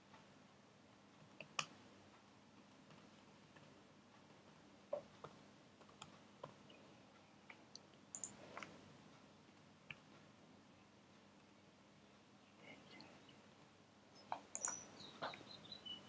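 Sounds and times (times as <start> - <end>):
faint steady hum: 0.0 - 16.0
computer keyboard keystrokes: 8.1 - 8.4, 14.5 - 14.8.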